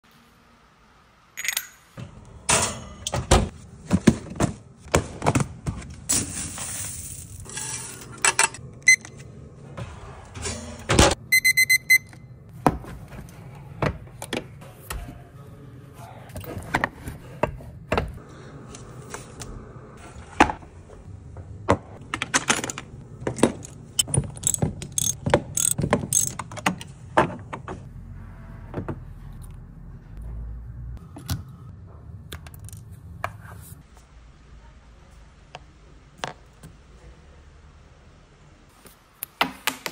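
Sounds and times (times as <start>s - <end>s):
high electronic beeps: 11.3s - 12.1s.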